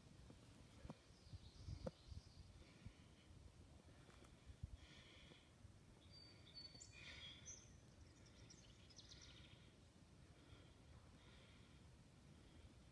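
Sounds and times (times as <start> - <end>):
faint bird chirps: 0.9 - 2.9, 5.9 - 9.8.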